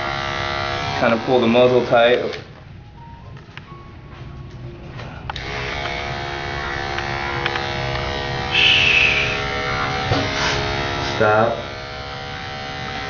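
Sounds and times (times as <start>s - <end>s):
electric clippers buzzing: 0.0s - 2.5s, 5.3s - 13.0s
high-pitched burst: 8.5s - 9.8s.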